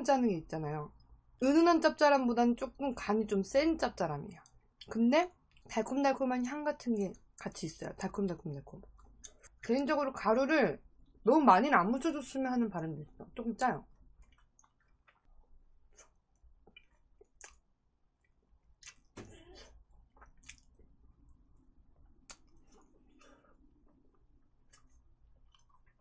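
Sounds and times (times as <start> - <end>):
person chewing: 8.8 - 9.6, 13.9 - 26.0.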